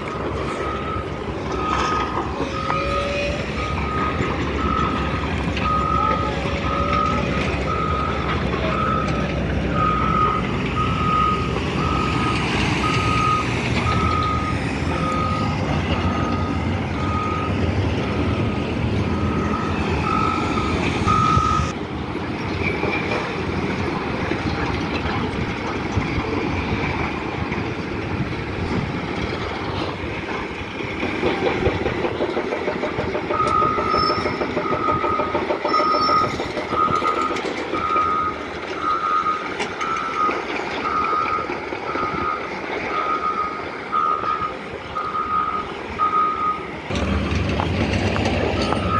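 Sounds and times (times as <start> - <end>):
reversing alarm beeping: 0.0 - 21.8, 31.4 - 47.1, 48.5 - 48.9
heavy engines rumbling: 0.0 - 48.9.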